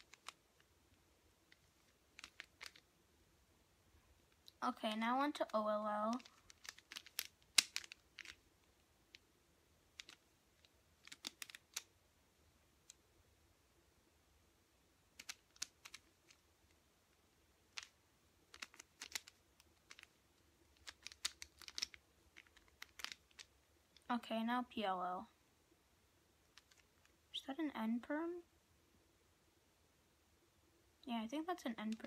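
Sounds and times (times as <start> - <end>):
puzzle cube clicking: 0.0 - 0.7, 1.5 - 2.9, 5.3 - 9.2, 9.9 - 11.9, 15.1 - 16.4, 17.7 - 24.1, 26.5 - 27.2.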